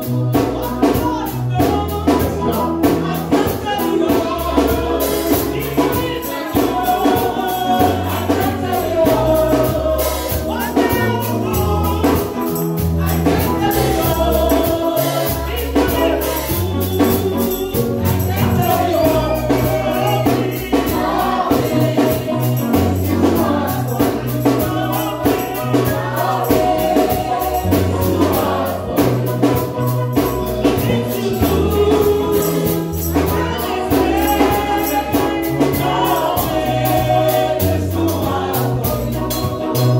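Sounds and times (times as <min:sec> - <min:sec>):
drums and tambourine beat: 0:00.0 - 0:39.9
group of voices singing: 0:00.0 - 0:39.9
stepping bass line: 0:00.0 - 0:39.9.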